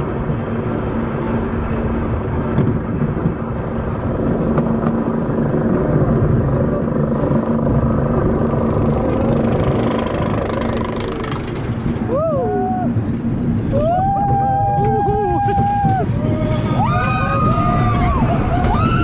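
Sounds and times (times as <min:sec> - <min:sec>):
constant hum: 0:00.0 - 0:19.0
roller coaster rumble and rattle: 0:00.0 - 0:19.0.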